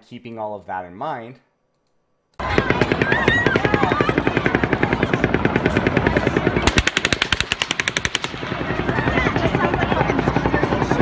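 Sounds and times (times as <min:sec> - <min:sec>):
rapid automatic gunfire: 0:02.4 - 0:11.0
second gun firing burst: 0:06.6 - 0:08.6.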